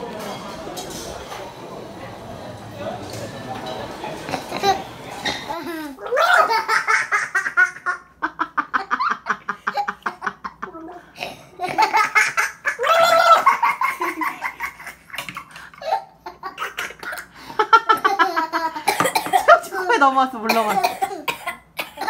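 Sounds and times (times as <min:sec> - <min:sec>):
children giggling: 0:04.2 - 0:19.6
child squealing: 0:06.0 - 0:06.6, 0:12.8 - 0:13.5.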